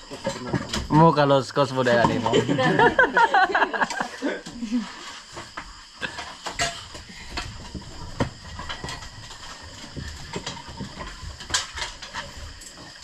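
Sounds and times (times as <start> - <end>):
utensils clattering on plates: 6.0 - 7.8.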